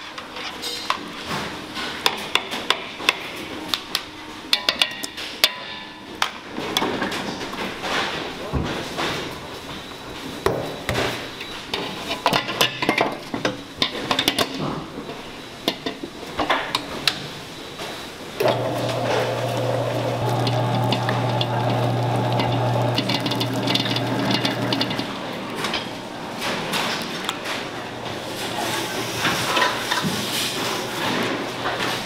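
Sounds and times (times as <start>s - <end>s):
mixer motor humming: 18.4s - 25.6s
steel bowl clanking: 18.4s - 26.0s.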